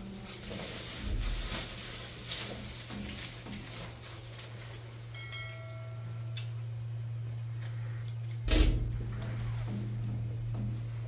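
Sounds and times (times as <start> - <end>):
steady low hum: 0.0 - 11.0
bell-like background music: 5.1 - 6.4.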